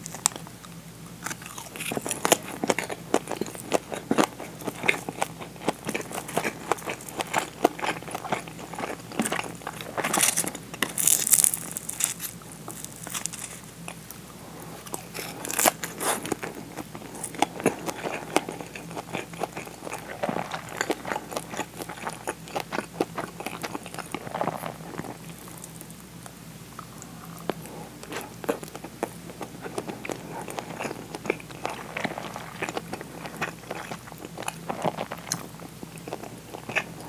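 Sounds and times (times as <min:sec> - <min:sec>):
crunching crisp food: 0:00.0 - 0:37.0
chewing with wet mouth clicks: 0:14.8 - 0:37.0.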